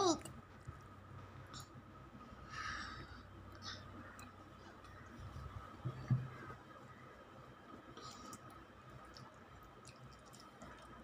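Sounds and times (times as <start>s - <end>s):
faint room hiss: 0.0s - 11.0s
faint soft eating clicks: 3.4s - 5.2s, 7.9s - 11.0s.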